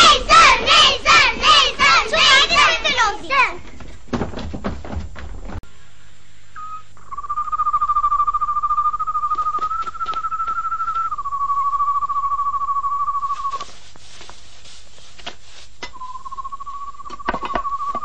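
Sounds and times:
night animal trilling call: 6.6 - 13.6, 16.0 - 18.0.

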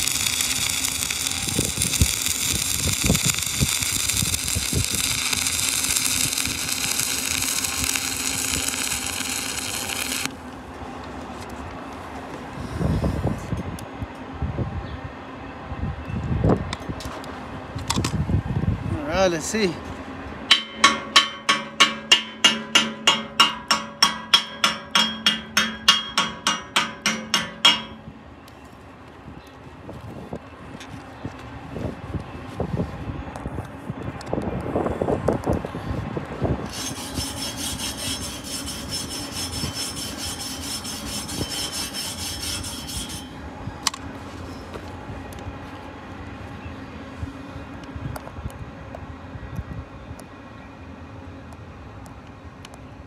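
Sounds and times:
welding arc crackling sizzle: 0.0 - 10.4, 36.7 - 43.4
hammer striking metal: 20.5 - 28.1.

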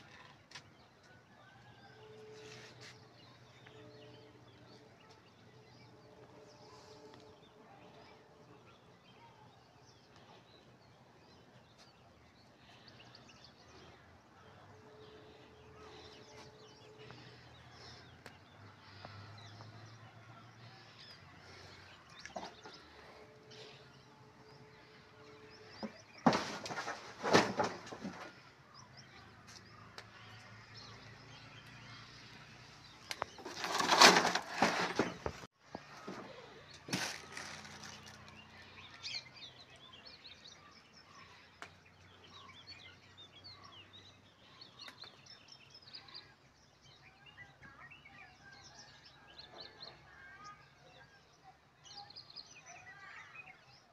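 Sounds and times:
cardboard crackling and rustling: 33.2 - 38.3.

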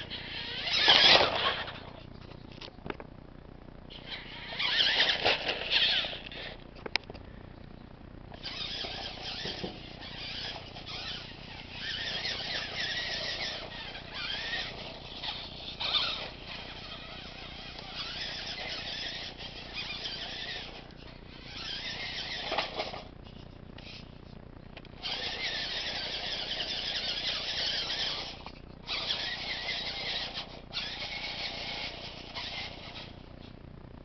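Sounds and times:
toy truck motor and gears whining: 0.0 - 3.0, 3.9 - 7.2, 8.3 - 33.6.

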